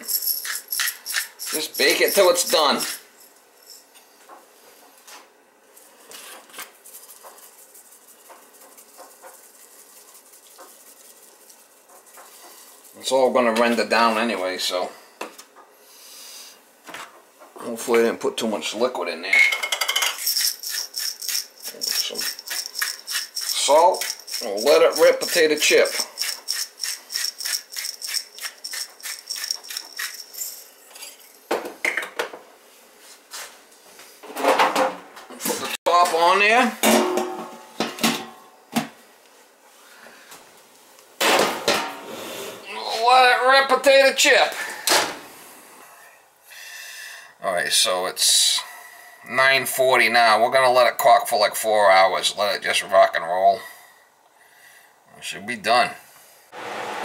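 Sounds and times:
herbs rattling from shaker jar: 0.0s - 3.1s, 6.8s - 13.1s, 20.0s - 31.3s.

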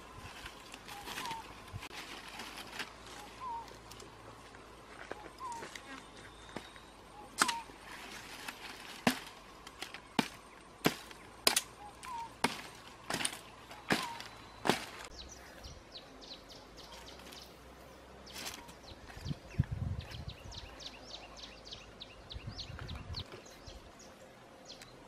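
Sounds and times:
faint bird chirps: 3.0s - 3.8s, 11.7s - 12.4s
blade chopping vine: 7.4s - 15.1s.

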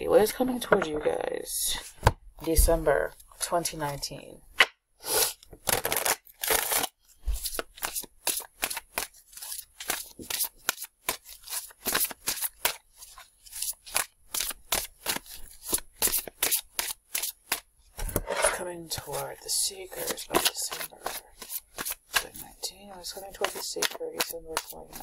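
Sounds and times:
cards being shuffled: 5.5s - 19.2s, 19.9s - 25.0s.

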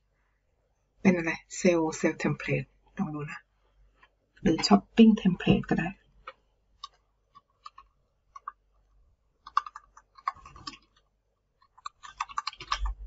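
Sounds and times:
computer keyboard typing: 6.8s - 8.6s, 9.4s - 11.0s, 11.6s - 13.0s.

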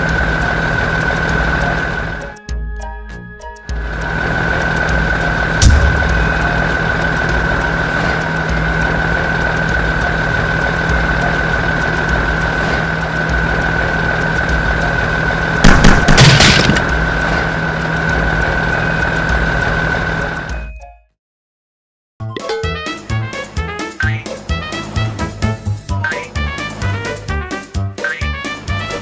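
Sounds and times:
tank engine rumble with whine: 0.0s - 20.8s, 22.6s - 29.0s
sharp bang: 5.6s - 6.5s
loud booms: 15.6s - 16.9s.

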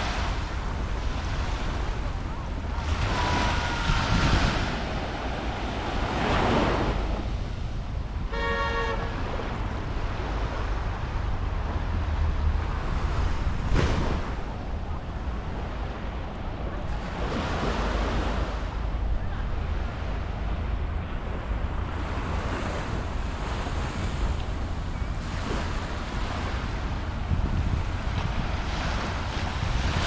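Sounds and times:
surf washing onto beach: 0.0s - 8.0s
wind buffeting microphone: 0.0s - 8.6s, 9.5s - 30.0s
short horn toot: 8.3s - 9.2s.

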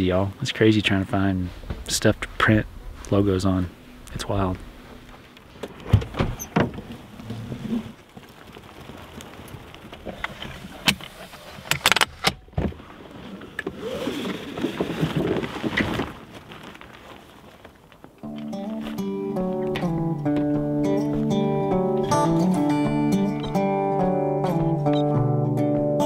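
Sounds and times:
rustling: 0.0s - 12.1s, 12.8s - 19.8s.

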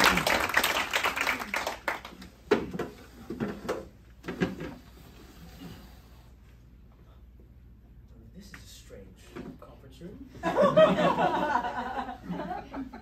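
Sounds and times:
audience applause: 0.0s - 2.1s
wooden chairs scraping and knocking: 2.5s - 5.8s.

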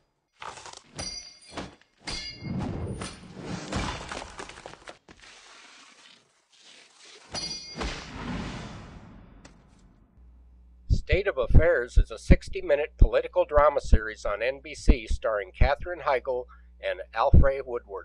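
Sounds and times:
glass shattering crashes: 0.9s - 4.9s, 7.3s - 9.0s.

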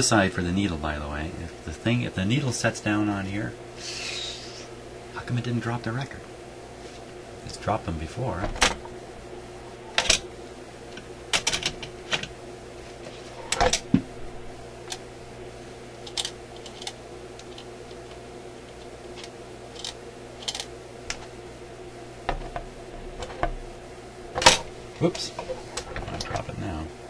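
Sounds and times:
steady low hum: 0.0s - 27.0s
record changer clicks and knocks: 8.4s - 8.9s, 10.0s - 10.3s, 10.9s - 12.4s, 13.5s - 14.1s, 24.3s - 24.7s.

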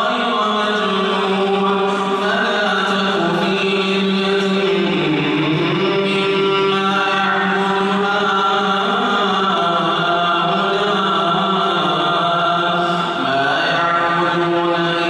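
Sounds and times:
man chanting melodic recitation: 0.0s - 15.0s.

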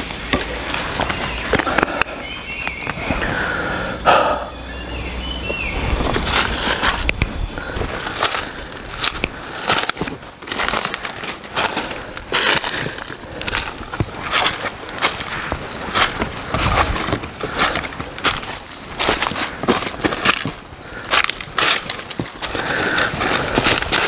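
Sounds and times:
bird calls: 0.0s - 9.6s, 22.4s - 24.0s
high-pitched insect drone: 0.0s - 24.0s
footsteps rustling through leaves: 5.5s - 24.0s.

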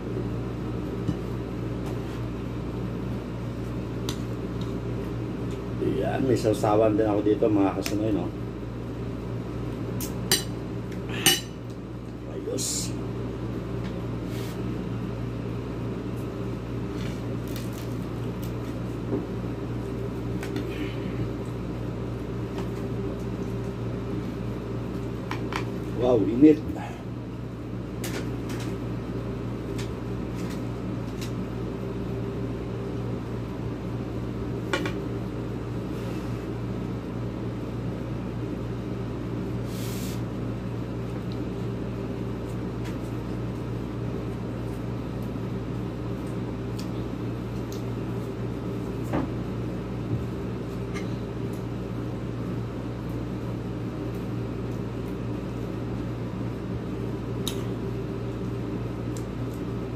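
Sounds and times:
appliance low hum: 0.0s - 59.9s.

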